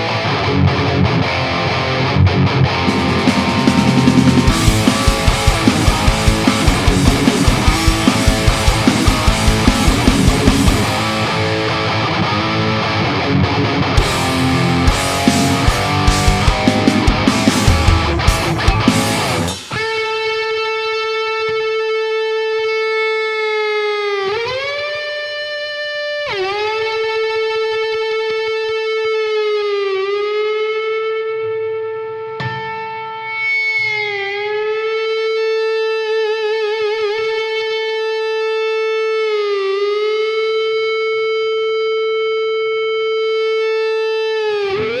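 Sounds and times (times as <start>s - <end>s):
sustained electric guitar note: 0.0s - 20.3s.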